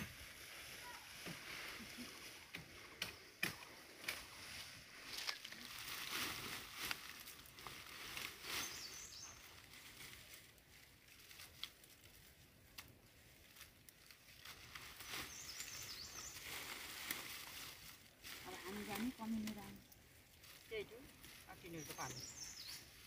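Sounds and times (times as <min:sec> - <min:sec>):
leafy branches rustling: 0:00.0 - 0:23.0
stems snapping and crackling: 0:02.4 - 0:08.7, 0:09.4 - 0:21.4.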